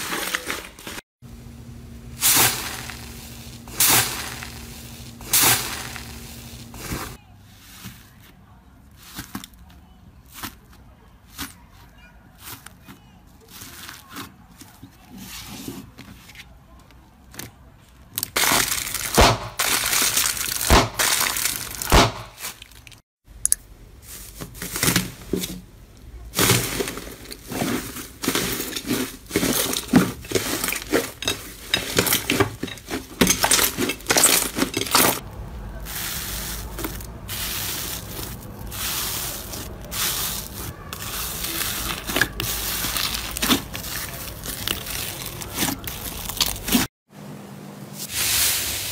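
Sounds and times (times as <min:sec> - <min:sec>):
slime crackling and popping: 0:18.2 - 0:23.0.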